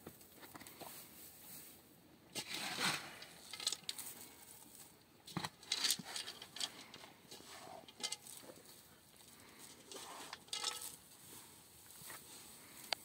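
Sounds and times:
hand scooping dry feed in metal basin: 2.3s - 8.8s, 9.5s - 12.8s.

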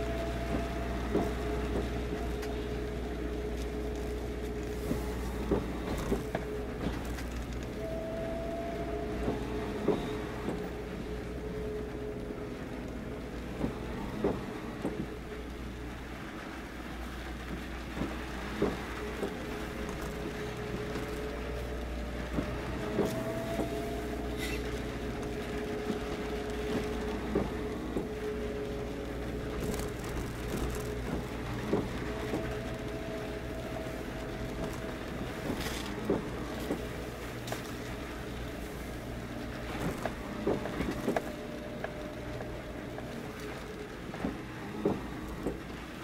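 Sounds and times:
faint held hums: 0.0s - 46.0s
low steady rumble: 0.0s - 46.0s.

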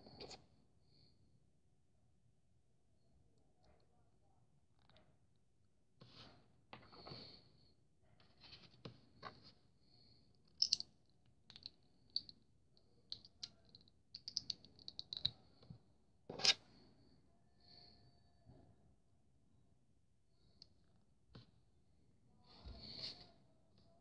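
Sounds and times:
plastic model parts clicking: 10.6s - 10.8s, 13.1s - 15.3s.

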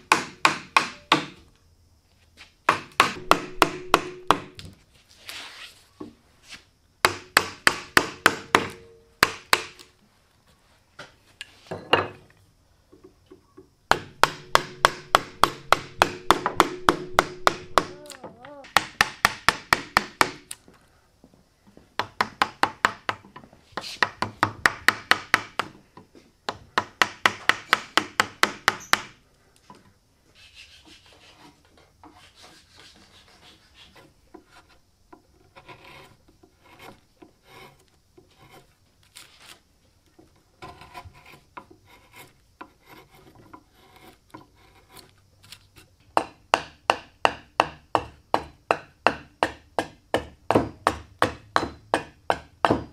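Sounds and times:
hatchet chopping wood: 0.0s - 1.4s, 2.7s - 4.8s, 7.0s - 9.9s, 13.9s - 20.6s, 24.0s - 25.8s, 26.5s - 29.2s, 46.1s - 52.9s
faint scraping and tapping: 29.5s - 46.0s.

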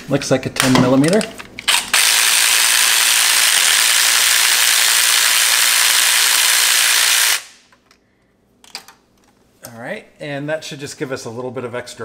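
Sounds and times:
power ratchet running: 1.7s - 7.5s.

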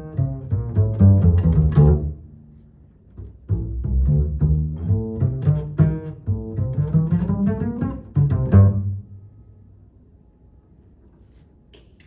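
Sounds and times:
double bass playing low notes: 0.0s - 9.5s.

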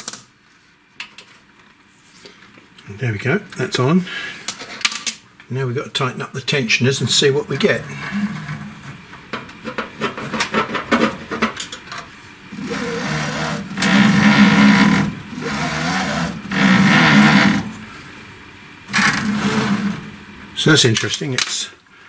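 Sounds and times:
belt and motor whirring: 12.5s - 17.9s, 18.9s - 20.2s.

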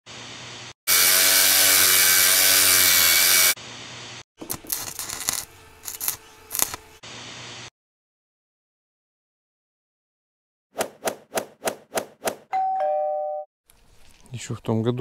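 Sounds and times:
power tool cutting steel: 0.9s - 3.6s, 4.4s - 7.0s.

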